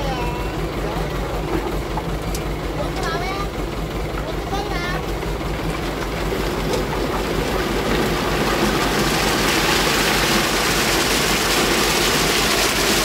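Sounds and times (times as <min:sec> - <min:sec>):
concrete mixer engine running: 0:00.0 - 0:13.0
wet concrete pouring down chute: 0:05.8 - 0:13.0.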